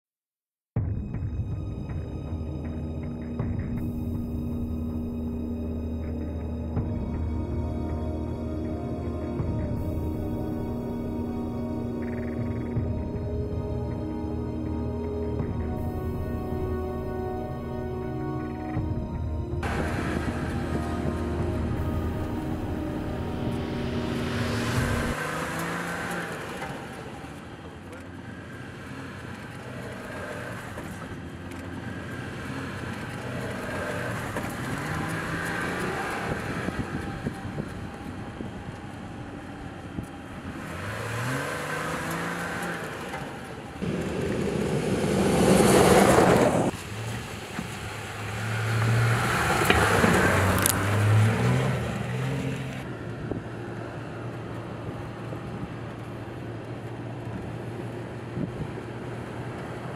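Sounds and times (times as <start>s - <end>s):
pickup engine revving: 3.0s - 53.4s
rush of vehicle passing close: 9.4s - 59.9s.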